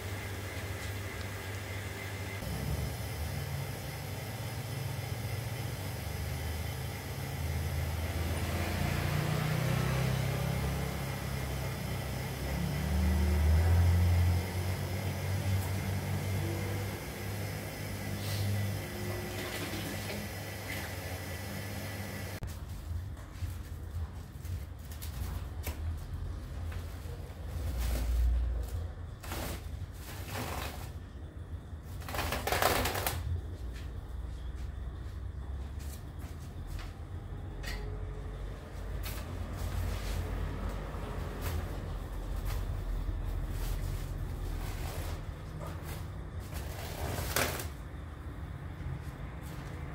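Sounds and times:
plastic sacks rustling: 41.1s - 47.8s.

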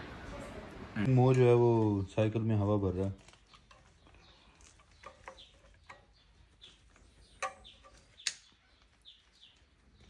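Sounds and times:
birds chirping faintly: 0.0s - 10.0s
sharp clicks: 7.4s - 8.9s.

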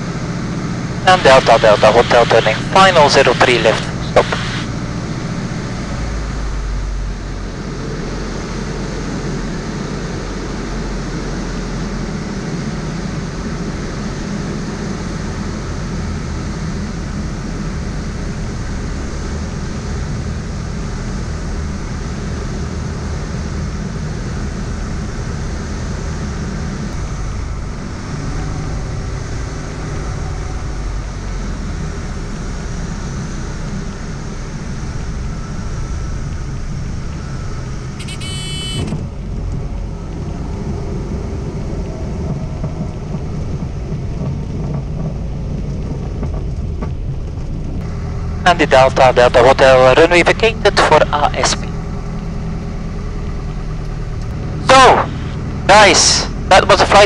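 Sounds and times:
propeller aircraft engine running: 0.0s - 57.0s
airflow noise: 1.0s - 5.6s, 54.4s - 56.4s.

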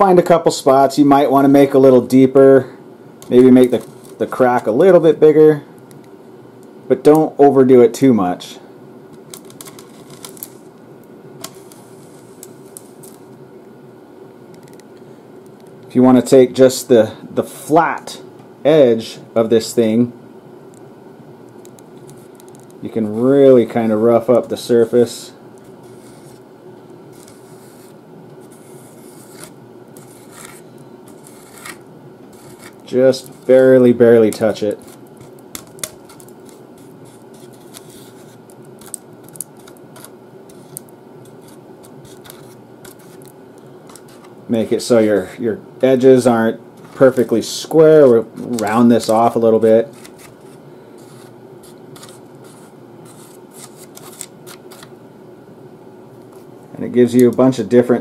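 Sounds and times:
knife scraping styrofoam: 25.8s - 26.4s, 27.1s - 33.6s, 34.7s - 43.3s, 49.8s - 54.9s.

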